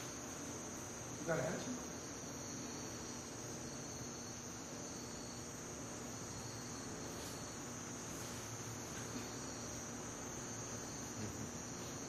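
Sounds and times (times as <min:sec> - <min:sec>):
crickets chirring: 0:00.0 - 0:12.0
low even hiss: 0:00.0 - 0:12.0.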